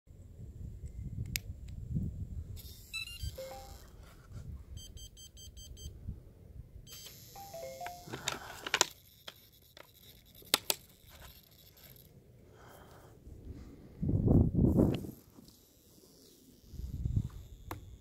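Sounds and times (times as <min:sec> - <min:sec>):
electronic power-up beeps: 0:02.6 - 0:03.8
sharp clicks: 0:06.9 - 0:12.0.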